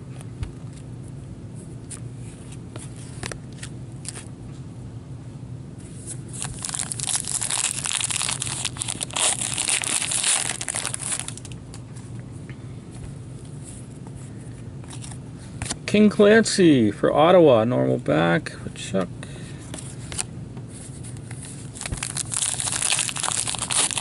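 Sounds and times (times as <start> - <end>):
wrapper tearing and crinkling: 6.3 - 11.6, 21.6 - 24.0.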